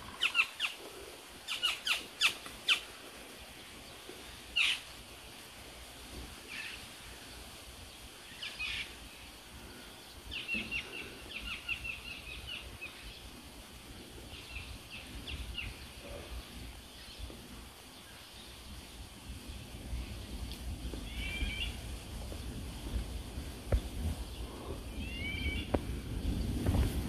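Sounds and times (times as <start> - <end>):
songbirds chirping: 0.0 - 27.0
steady low rumble: 7.1 - 27.0.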